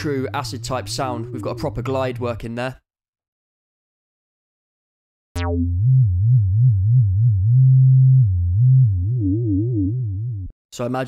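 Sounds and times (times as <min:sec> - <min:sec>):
acid synth wobbling bassline: 0:05.4 - 0:10.5.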